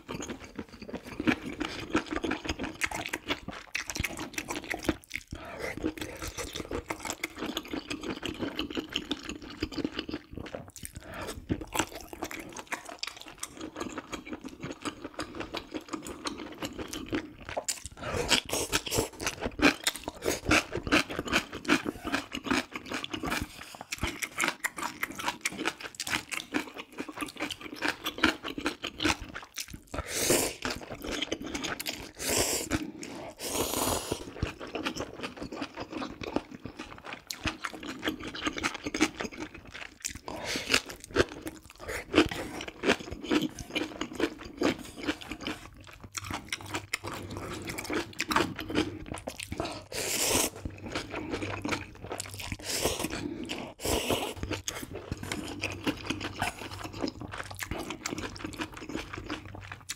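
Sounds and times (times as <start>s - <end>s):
wet chewing and crunching: 0.0s - 59.9s
noodle slurping: 32.0s - 34.4s, 47.0s - 51.8s, 52.4s - 58.0s.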